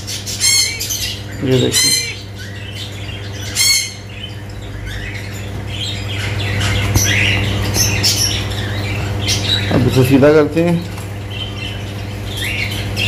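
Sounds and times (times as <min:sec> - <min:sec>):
bird harsh squawk: 0:00.0 - 0:10.1
high bird chirping: 0:00.0 - 0:13.0
steady low hum: 0:00.0 - 0:13.0.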